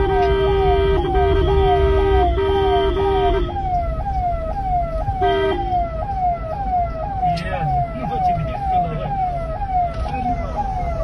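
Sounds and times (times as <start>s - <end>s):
horn honk: 0.0s - 3.6s, 5.2s - 5.7s
electronic siren sweeping: 0.0s - 11.0s.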